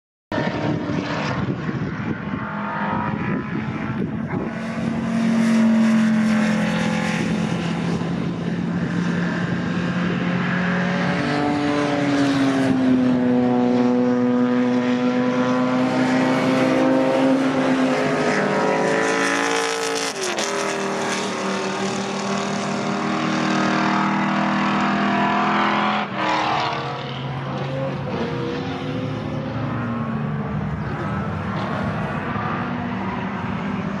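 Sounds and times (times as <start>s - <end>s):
race cars driving past: 0.3s - 34.0s.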